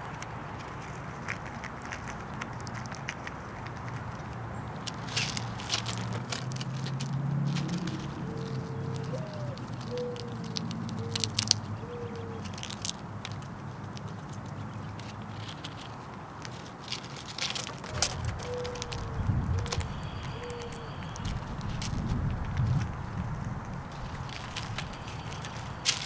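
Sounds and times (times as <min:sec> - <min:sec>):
squirrel cracking peanuts: 0:00.0 - 0:26.0
bird low calls: 0:07.2 - 0:12.6, 0:17.9 - 0:26.0.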